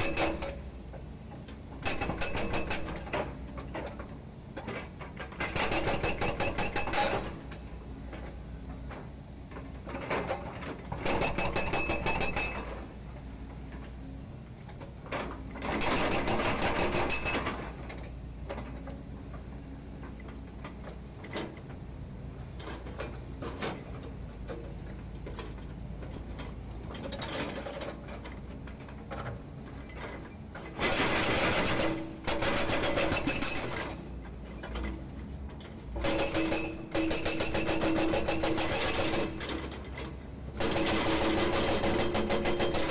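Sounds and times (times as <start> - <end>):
hydraulic breaker hammering concrete: 0.0 - 0.6, 1.8 - 3.3, 5.4 - 7.4, 11.0 - 12.8, 15.7 - 17.7, 30.7 - 34.0, 36.0 - 42.9
excavator diesel engine running: 0.0 - 42.9.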